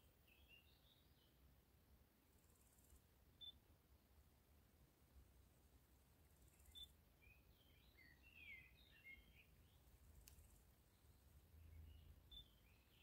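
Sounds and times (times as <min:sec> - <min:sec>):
small bird chirping: 0:00.0 - 0:01.4, 0:02.4 - 0:03.6, 0:06.2 - 0:13.0.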